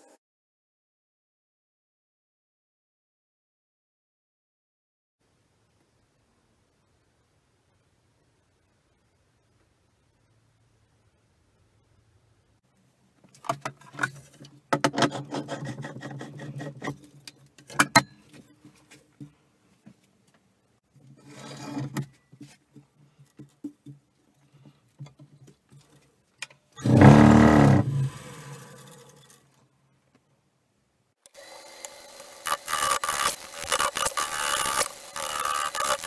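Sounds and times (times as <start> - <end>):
wood lathe spinning up: 26.8 - 29.4, 31.3 - 36.0.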